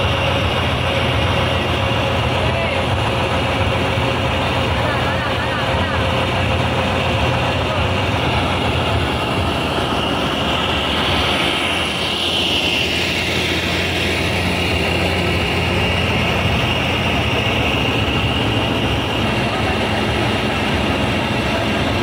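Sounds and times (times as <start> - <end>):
tank diesel engine running: 0.0 - 22.0.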